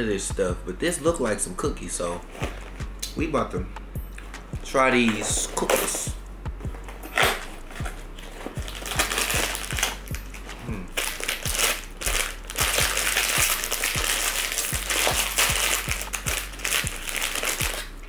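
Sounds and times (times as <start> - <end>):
background music with steady beat: 0.0 - 18.0
plastic wrapper crinkling: 6.7 - 18.0.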